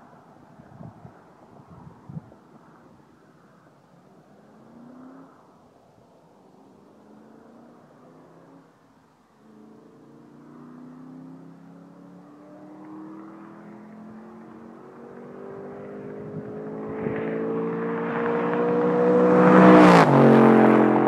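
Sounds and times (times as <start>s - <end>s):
car exhaust fly-by: 12.5s - 21.0s.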